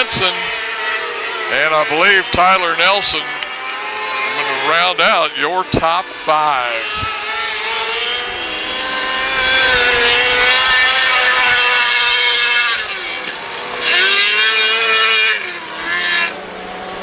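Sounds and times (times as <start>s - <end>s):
high-revving race car engines passing: 0.0s - 17.0s.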